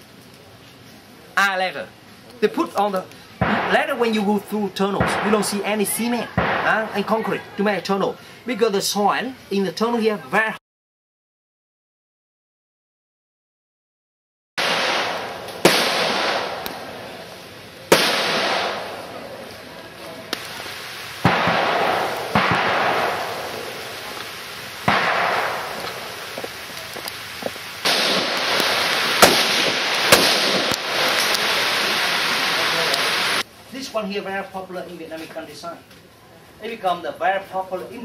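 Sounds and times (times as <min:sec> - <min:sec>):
gunshots echoing: 0:03.4 - 0:04.2, 0:05.0 - 0:07.2, 0:14.6 - 0:17.1, 0:17.9 - 0:19.2, 0:21.2 - 0:26.4, 0:27.8 - 0:31.6.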